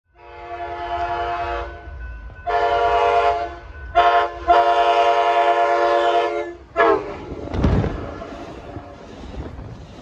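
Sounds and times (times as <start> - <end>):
train horn chord: 0.1 - 7.2
low train rumble: 0.1 - 10.0.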